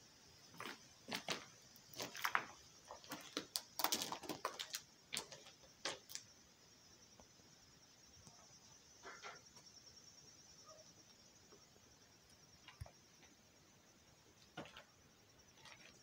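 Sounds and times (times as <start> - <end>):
insects chorus: 0.0 - 16.0
sharp close clicks and crunches: 0.6 - 6.3.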